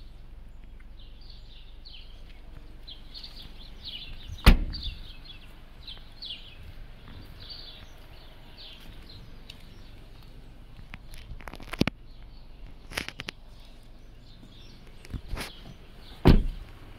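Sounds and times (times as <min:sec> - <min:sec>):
birds chirping: 0:00.0 - 0:16.9
car tailgate slamming shut: 0:04.4 - 0:05.0, 0:16.2 - 0:16.6.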